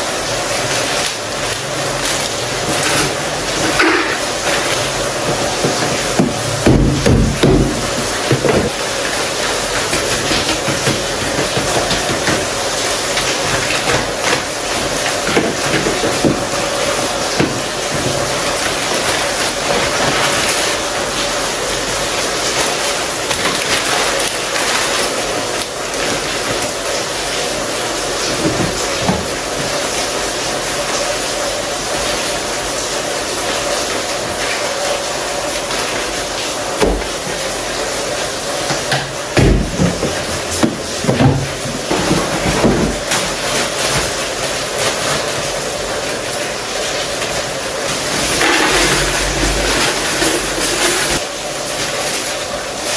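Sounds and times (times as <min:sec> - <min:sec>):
loud steady hiss: 0:00.0 - 0:52.9
plastic containers being handled: 0:02.0 - 0:21.0, 0:28.1 - 0:29.8, 0:38.7 - 0:45.5
items knocking on counter: 0:05.2 - 0:08.9, 0:09.9 - 0:12.6, 0:15.2 - 0:16.6, 0:28.3 - 0:29.7, 0:38.7 - 0:43.3.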